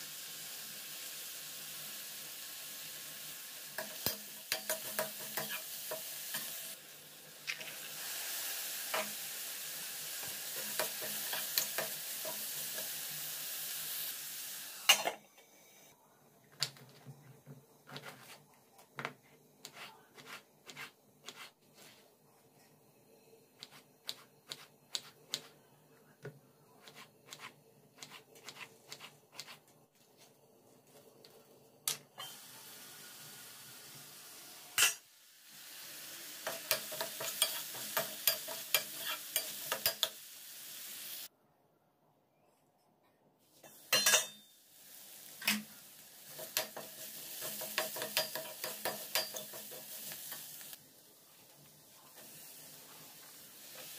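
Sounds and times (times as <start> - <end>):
onions sizzling in oil: 0.0 - 15.2, 32.2 - 41.3, 43.6 - 53.9
faint steady hiss: 0.0 - 53.9
spatula scraping a pan: 19.6 - 22.0, 36.5 - 40.1, 46.3 - 50.5.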